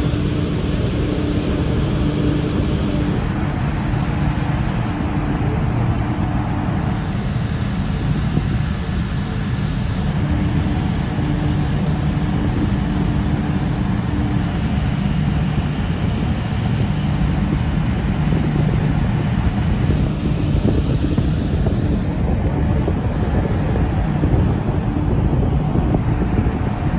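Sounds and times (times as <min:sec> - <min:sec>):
ship machinery rumble: 0:00.0 - 0:26.9
wind buffeting microphone: 0:00.0 - 0:26.9.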